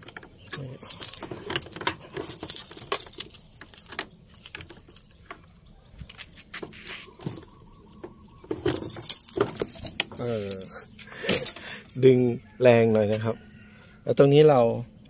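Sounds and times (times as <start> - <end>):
keys jangling: 0.0 - 5.2, 7.2 - 12.3.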